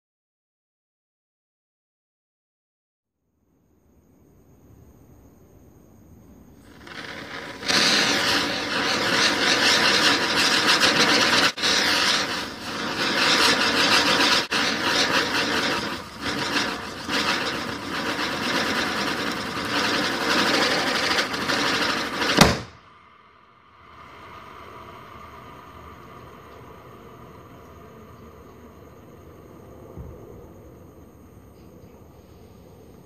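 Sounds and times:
faint hum: 0:03.3 - 0:33.0
spinning firecracker hissing: 0:06.6 - 0:22.8
firecracker bang: 0:06.7 - 0:22.8.

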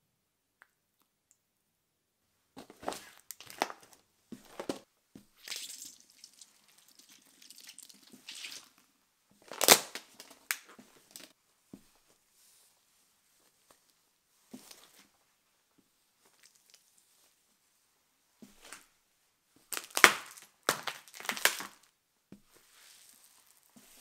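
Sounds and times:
shoe crushing small objects: 0:19.7 - 0:21.9.

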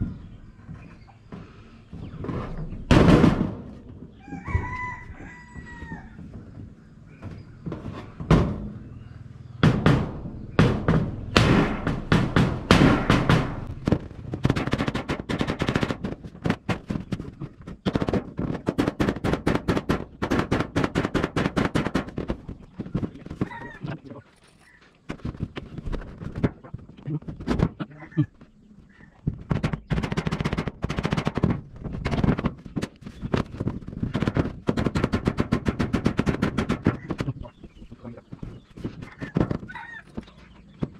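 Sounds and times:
rooster crowing: 0:04.2 - 0:06.2, 0:23.4 - 0:23.8, 0:39.7 - 0:40.2
loud knock: 0:09.6 - 0:16.9
rapid hammer blows: 0:09.6 - 0:22.5, 0:29.5 - 0:37.3.

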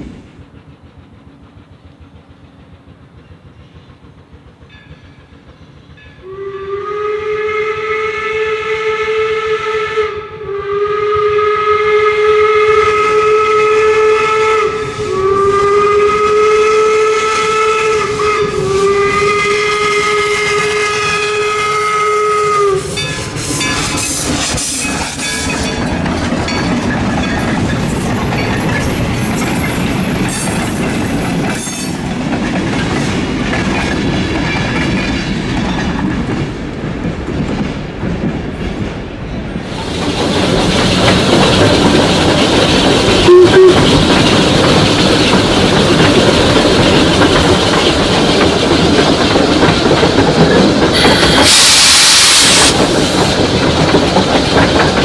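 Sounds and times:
train rumbling past: 0:00.0 - 0:55.0
steam whistle blasts: 0:06.2 - 0:23.7, 0:43.2 - 0:44.0, 0:51.0 - 0:52.8.

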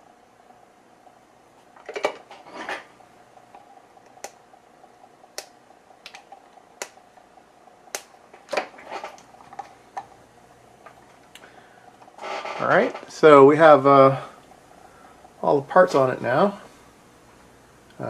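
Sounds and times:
faint steady hum: 0:00.0 - 0:18.0
sharp clicks: 0:07.9 - 0:08.2
short scraping sounds: 0:12.2 - 0:13.1.

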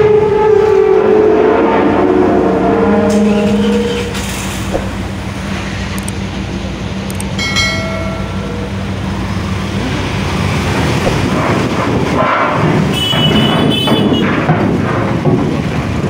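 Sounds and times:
engines idling: 0:03.1 - 0:13.6.

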